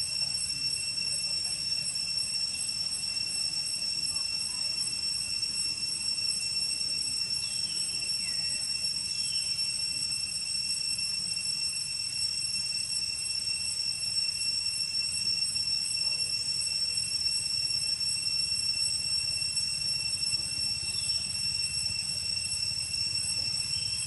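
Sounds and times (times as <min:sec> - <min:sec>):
cicada chorus whine: 0:00.0 - 0:24.0
falling chirps: 0:19.1 - 0:24.0.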